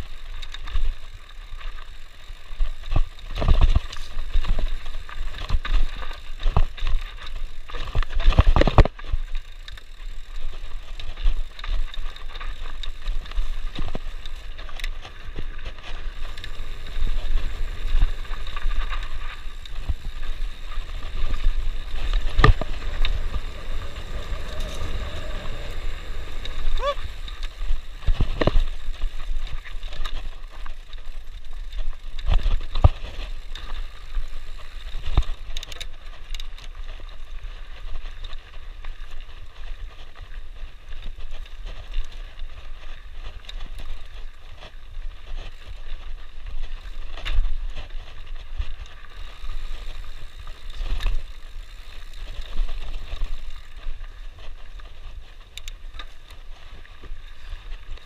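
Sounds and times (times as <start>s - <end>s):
bike rattling: 0.0s - 58.0s
bike tyres on dirt: 0.0s - 58.0s
low rumble: 16.1s - 29.7s.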